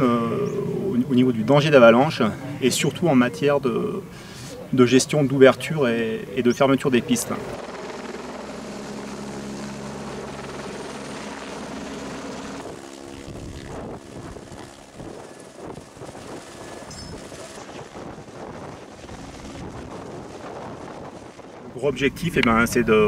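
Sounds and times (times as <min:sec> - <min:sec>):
helicopter rotor drone: 0:00.0 - 0:23.0.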